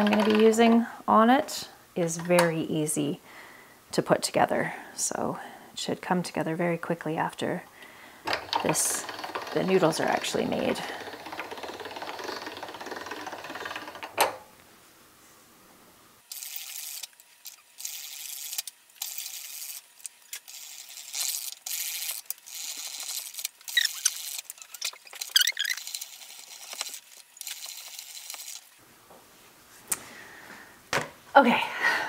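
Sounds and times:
pasta machine gears rattling: 0.0s - 0.8s, 8.3s - 14.4s, 16.3s - 28.8s.

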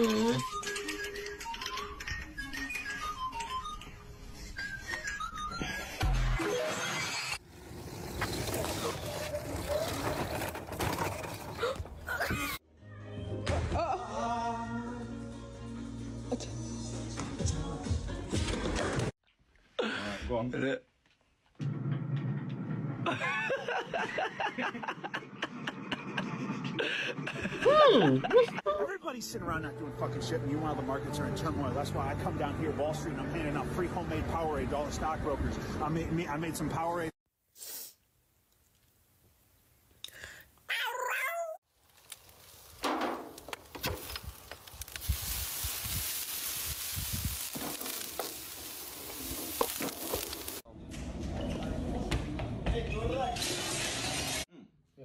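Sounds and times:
person snickering and chuckling: 23.1s - 28.7s
meat sizzling on grill: 44.7s - 50.6s.

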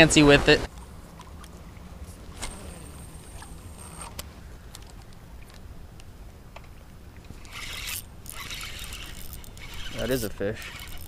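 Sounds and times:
line whining off spool: 0.8s - 5.6s, 7.3s - 11.0s
fishing reel click: 7.4s - 11.0s
reel cranking clicks: 7.4s - 11.0s.

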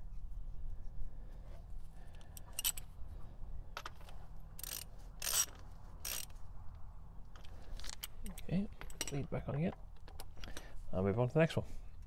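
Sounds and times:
low steady hum: 0.0s - 12.0s
ratchet clattering on metal: 4.6s - 6.3s.

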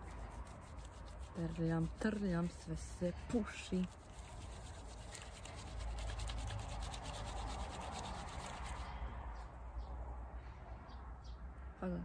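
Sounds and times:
wet fabric scrubbing: 0.0s - 9.0s.

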